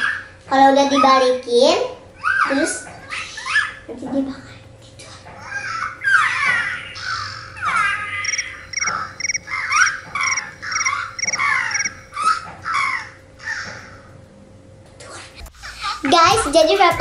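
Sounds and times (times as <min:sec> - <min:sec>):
toy squeaky electronic calls: 0:08.2 - 0:11.9
toy chirping trills: 0:08.2 - 0:12.1.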